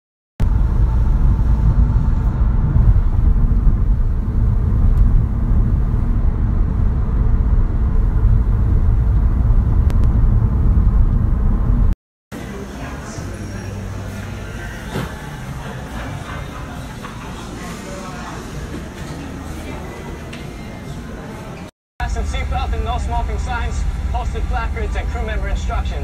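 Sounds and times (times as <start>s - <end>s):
car cabin road noise: 0.4s - 11.9s.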